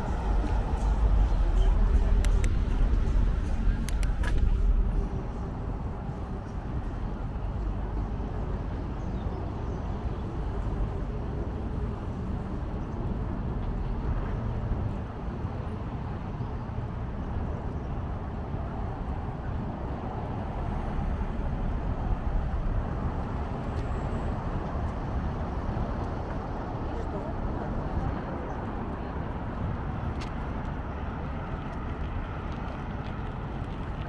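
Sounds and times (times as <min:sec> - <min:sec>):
road traffic: 0:00.0 - 0:34.0
wind rumble on microphone: 0:00.0 - 0:34.0.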